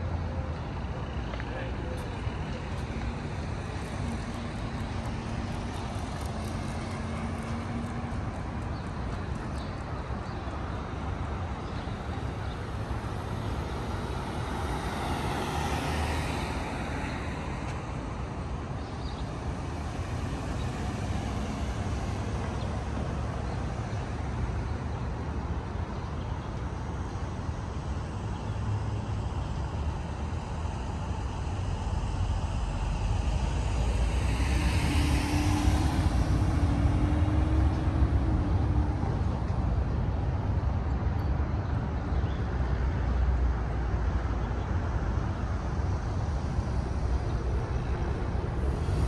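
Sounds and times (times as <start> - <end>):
street traffic noise: 0.0 - 49.0
vehicle passing by: 12.7 - 18.0, 30.4 - 40.2, 45.9 - 49.0.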